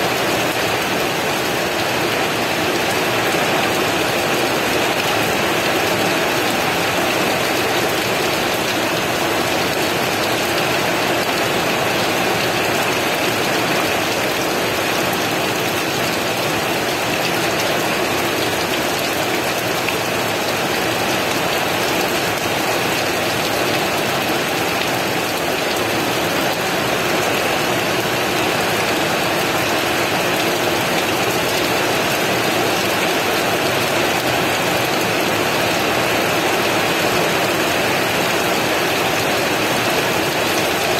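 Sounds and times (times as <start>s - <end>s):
heavy rain falling: 0.0s - 40.9s.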